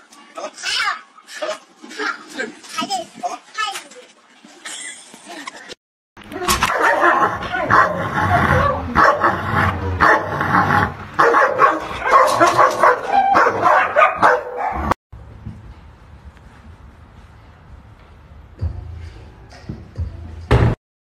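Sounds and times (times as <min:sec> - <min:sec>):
dog barking and yipping: 0:06.6 - 0:10.4, 0:11.2 - 0:15.0.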